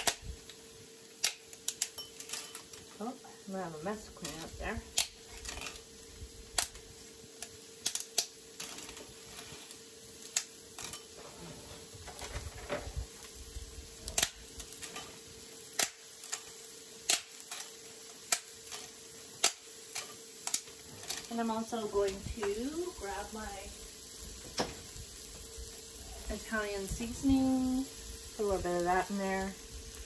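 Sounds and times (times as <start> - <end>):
dry noodles snapping: 1.2 - 1.9, 6.5 - 9.1, 14.0 - 14.9, 15.7 - 21.2.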